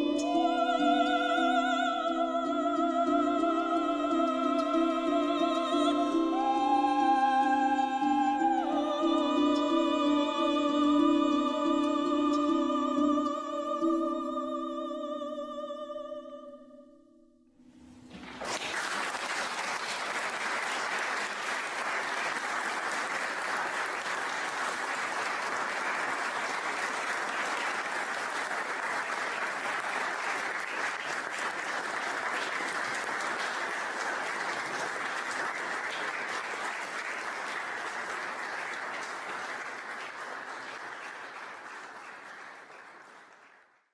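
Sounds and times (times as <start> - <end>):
congregation applauding: 18.1 - 43.9.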